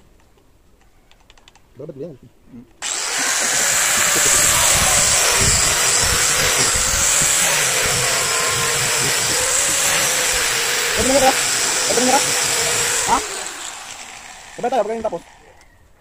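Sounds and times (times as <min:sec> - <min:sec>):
angle grinder grinding steel: 0:02.8 - 0:15.6.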